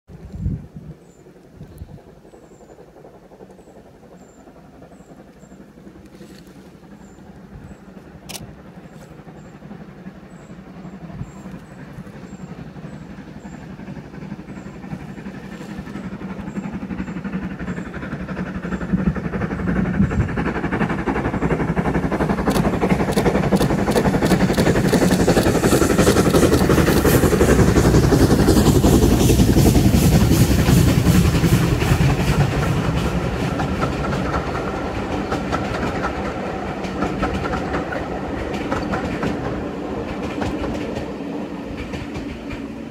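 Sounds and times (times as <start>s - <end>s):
steam locomotive exhaust beats: 0.1s - 42.9s
train wheels clattering over rail joints: 1.2s - 42.9s.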